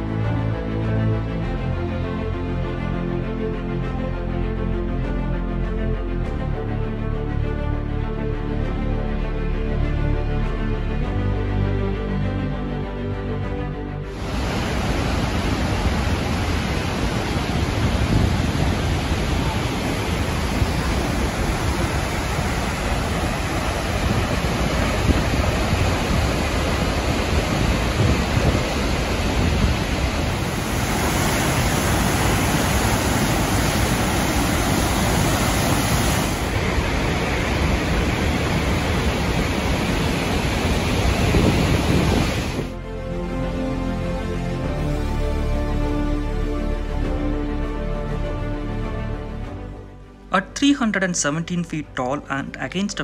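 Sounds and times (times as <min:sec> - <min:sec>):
rushing whitewater: 0:14.1 - 0:45.1.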